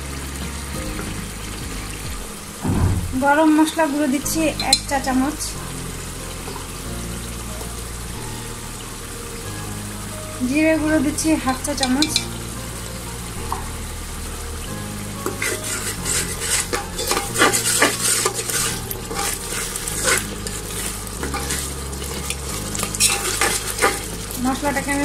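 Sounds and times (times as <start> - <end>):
spices sizzling in oil: 0.0 - 25.0
spoon scraping a pan: 11.8 - 12.4, 15.2 - 24.4.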